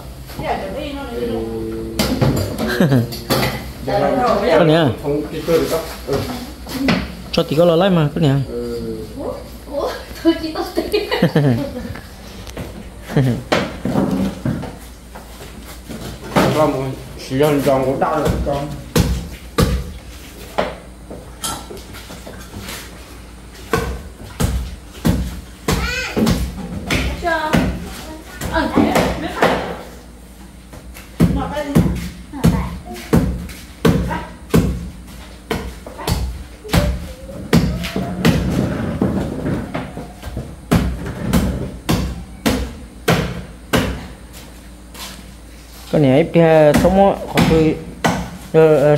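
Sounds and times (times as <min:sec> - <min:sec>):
cookware and utensils knocking: 0:02.0 - 0:03.7.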